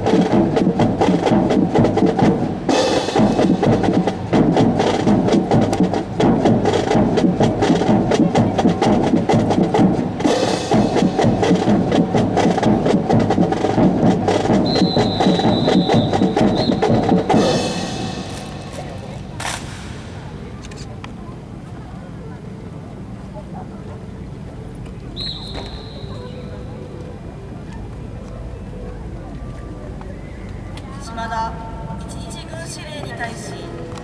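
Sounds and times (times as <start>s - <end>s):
fast snare drum cadence: 0.1s - 20.5s.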